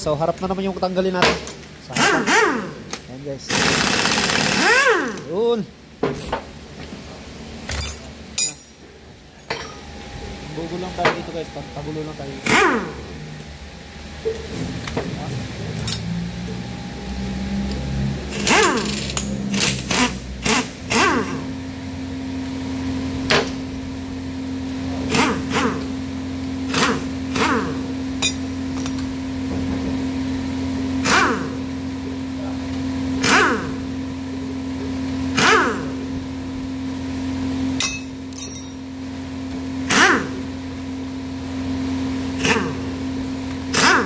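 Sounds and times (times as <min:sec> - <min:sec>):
steady hum: 0:00.0 - 0:43.9
impact wrench bursts: 0:01.3 - 0:05.3, 0:12.4 - 0:13.0, 0:18.3 - 0:21.5, 0:33.1 - 0:33.9, 0:35.3 - 0:36.0, 0:42.4 - 0:42.9.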